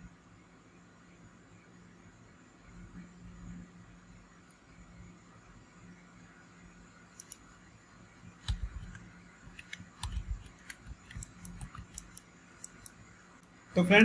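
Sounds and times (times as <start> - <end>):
mouse and keyboard clicks: 7.2 - 7.4, 8.4 - 13.5.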